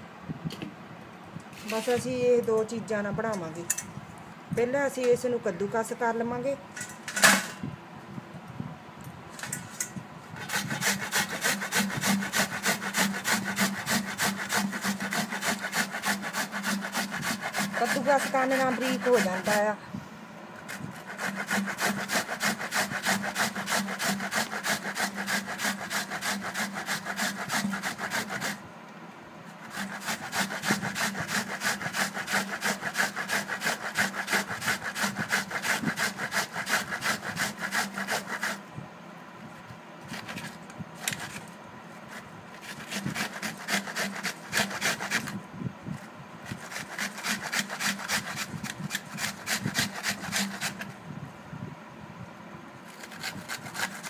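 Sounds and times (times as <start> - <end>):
onion rasping on grater: 10.4 - 19.8, 20.6 - 28.6, 29.6 - 38.6, 40.1 - 41.4, 42.1 - 45.4, 46.5 - 50.9, 52.9 - 54.0.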